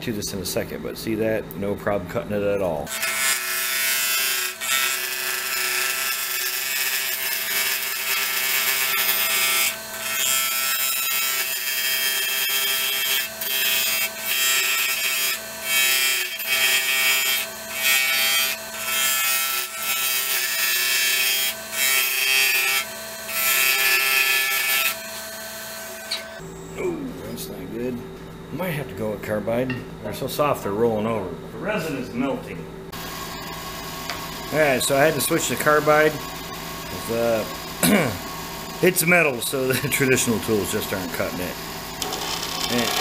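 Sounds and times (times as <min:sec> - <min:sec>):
lathe motor hum: 0:32.9 - 0:43.0.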